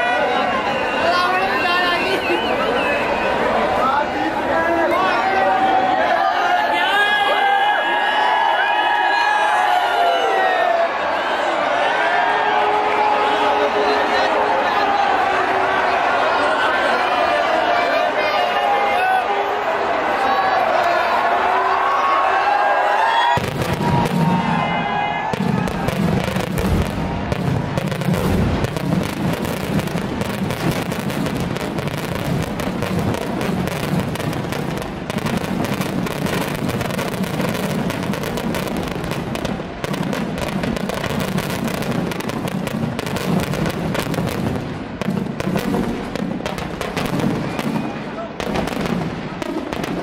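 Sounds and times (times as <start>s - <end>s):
firecrackers crackling: 23.2s - 50.0s.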